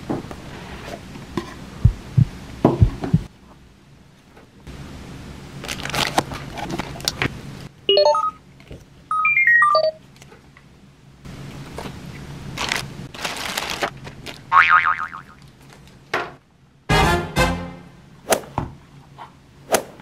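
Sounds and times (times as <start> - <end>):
plastic wrap crinkling: 5.6 - 7.2, 12.5 - 14.5.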